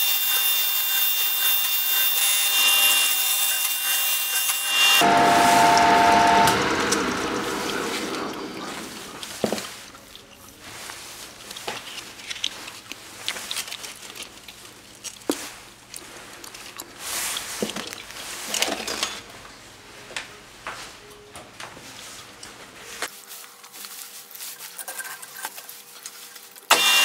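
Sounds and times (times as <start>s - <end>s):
metal lathe coasting to a stop: 5.0s - 9.4s.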